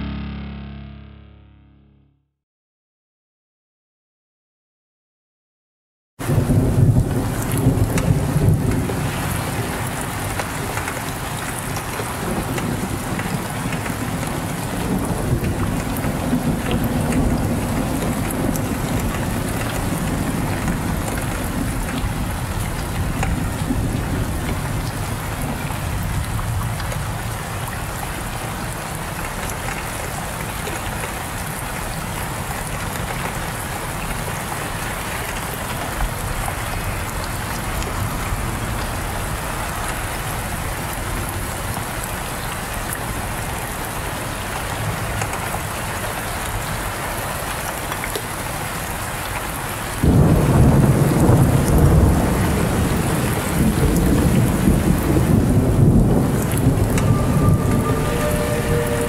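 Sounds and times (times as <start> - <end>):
thunder rumble: 6.2 - 29.2, 50.0 - 59.0
heavy rain: 6.2 - 59.0.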